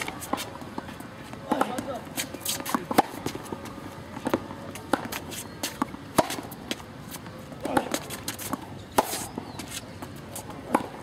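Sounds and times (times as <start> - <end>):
tennis ball struck by racket: 1.4 - 6.8, 7.6 - 9.8, 10.4 - 11.0.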